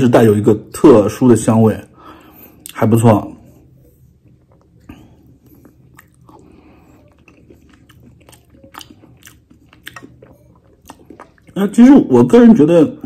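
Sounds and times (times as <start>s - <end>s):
person chewing: 3.4s - 11.8s.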